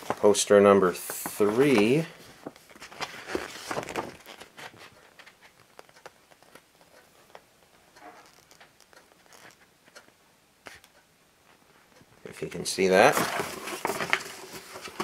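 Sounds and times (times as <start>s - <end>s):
paper rustling: 0.0s - 6.6s, 12.9s - 15.0s
faint crinkles and taps: 1.0s - 12.2s.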